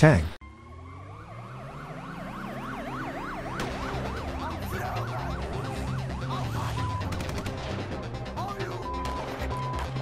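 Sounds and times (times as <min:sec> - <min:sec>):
yelp siren wailing: 0:00.4 - 0:07.2.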